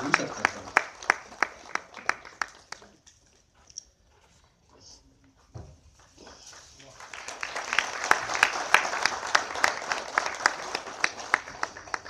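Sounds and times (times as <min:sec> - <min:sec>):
audience applauding: 0:00.0 - 0:03.0, 0:06.2 - 0:12.0.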